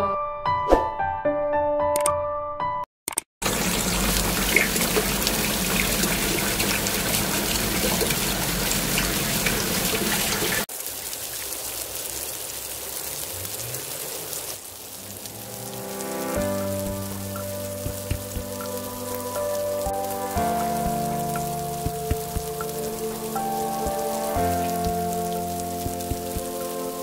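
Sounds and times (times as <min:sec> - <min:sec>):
tap water splashing into basin: 0:03.4 - 0:10.7, 0:16.8 - 0:18.8.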